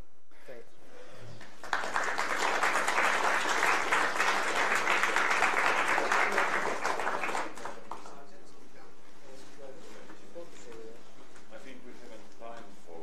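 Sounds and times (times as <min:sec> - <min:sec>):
audience applauding: 0:01.5 - 0:08.2.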